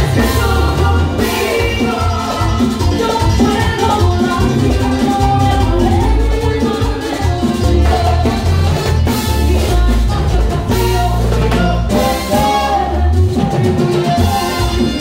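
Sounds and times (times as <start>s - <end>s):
horns playing: 0.0s - 3.0s, 7.6s - 15.0s
bass line: 0.0s - 15.0s
congas and hand percussion: 0.0s - 15.0s
person singing: 0.0s - 15.0s.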